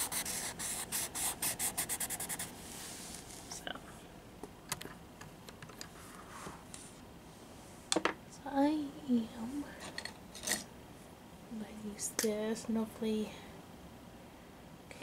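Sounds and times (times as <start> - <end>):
pencil scrubbing on paper: 0.0 - 2.5.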